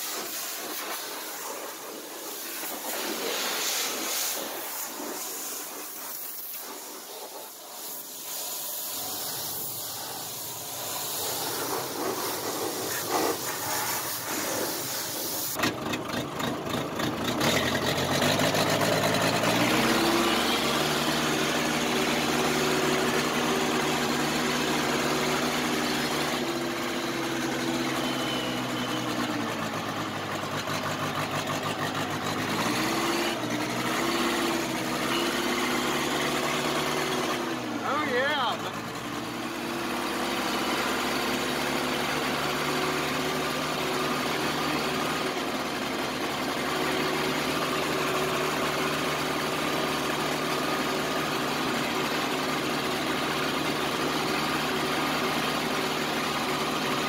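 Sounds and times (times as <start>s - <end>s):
pressure washer spray hissing: 0.0s - 15.6s
engine running and revving: 0.0s - 57.0s.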